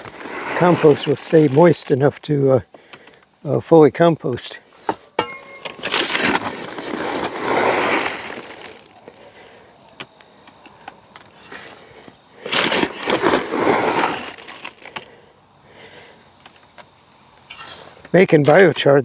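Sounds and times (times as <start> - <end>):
charcoal pouring into bin: 5.8 - 9.2, 12.4 - 14.9.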